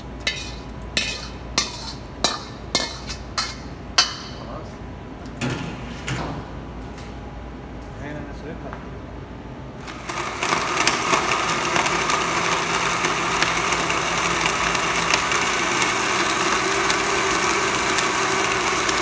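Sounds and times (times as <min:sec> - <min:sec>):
blender motor whirring: 0:09.8 - 0:19.0.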